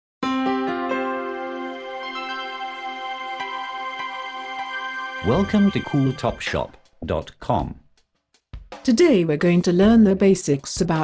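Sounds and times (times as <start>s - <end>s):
bright notes ringing into chord: 0.2s - 6.8s.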